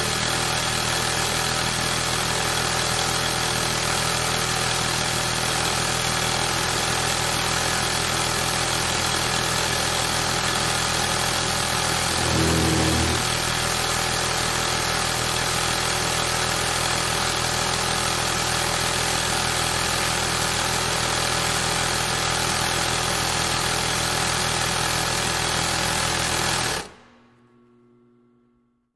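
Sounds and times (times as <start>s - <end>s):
sewing machine running: 12.0s - 13.5s.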